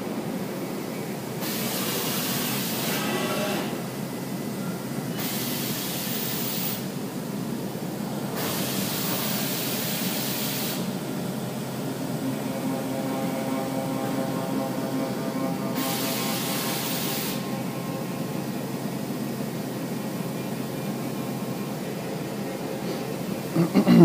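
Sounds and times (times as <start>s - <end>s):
steady machine hum: 0.0s - 24.0s
compressed air hiss bursts: 5.2s - 6.9s, 8.4s - 11.0s, 15.8s - 17.4s.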